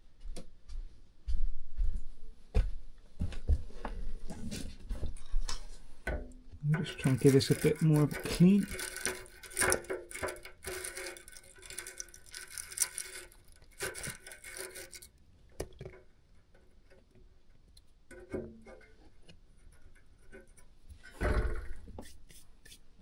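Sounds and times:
faint clicks and handling: 5.0 - 21.2
scrubbing a plumbing fitting: 6.6 - 17.0, 17.9 - 23.0.

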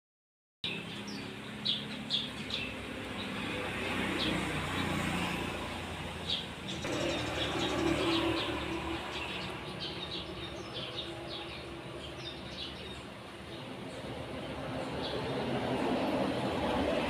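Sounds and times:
sparrows chirping: 0.6 - 17.0.

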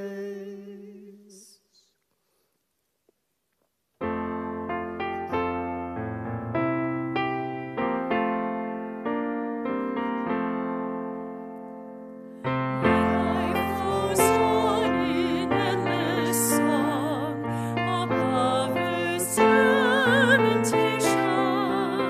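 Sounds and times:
person singing with vibrato: 0.0 - 1.6, 12.4 - 22.0
piano chords and notes: 4.0 - 22.0.

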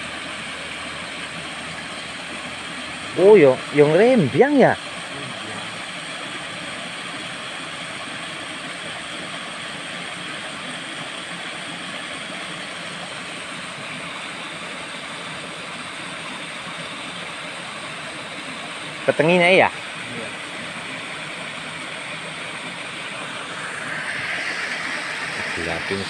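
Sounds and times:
water rushing from waterfall: 0.0 - 26.0.

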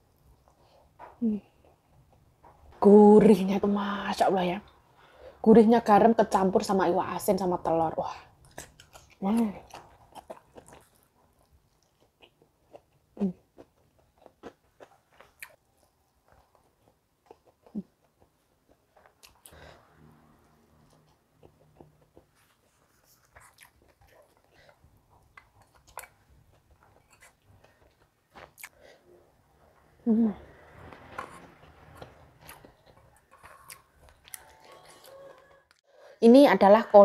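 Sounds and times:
person chewing: 8.3 - 30.0, 31.1 - 35.8.

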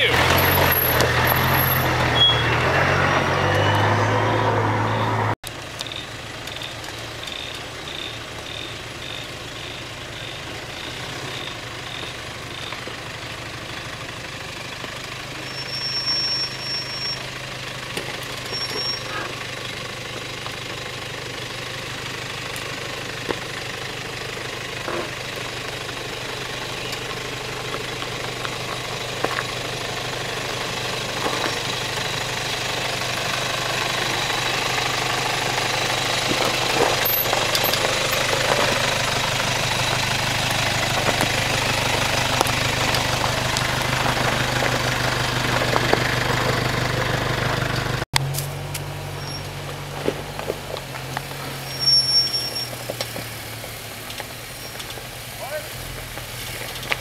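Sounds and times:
diesel engine running at low revs: 0.0 - 57.0
stones clicking under tyres: 5.5 - 57.0.

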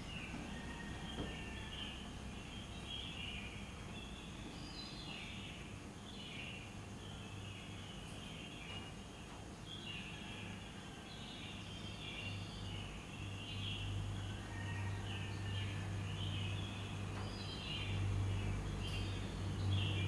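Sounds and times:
low steady hum: 0.0 - 20.0
small birds chirping: 0.0 - 20.0.

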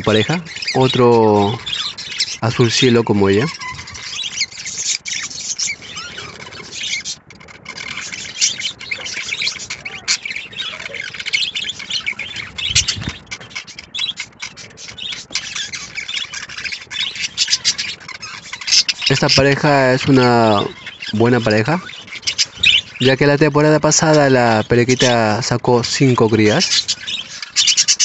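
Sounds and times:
budgerigars chattering: 0.0 - 28.0.

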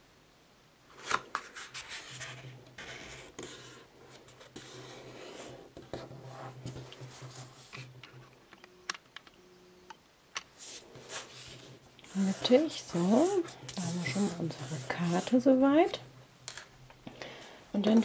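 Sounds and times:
card stock rustling and sliding: 10.6 - 15.4.

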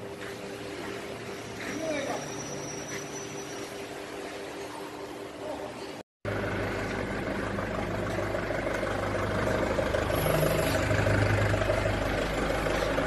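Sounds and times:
forklift engine idling: 6.3 - 13.0.

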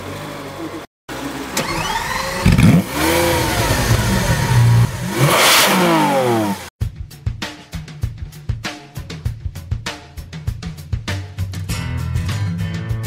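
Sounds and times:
car engine revving: 0.5 - 6.7
starter motor whir: 1.4 - 5.1
drum beat: 6.8 - 12.4.

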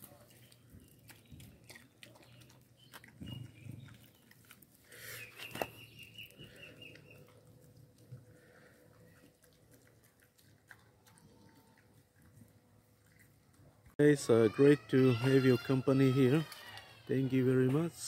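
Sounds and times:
dog chewing and licking: 0.0 - 5.0, 5.8 - 14.0.

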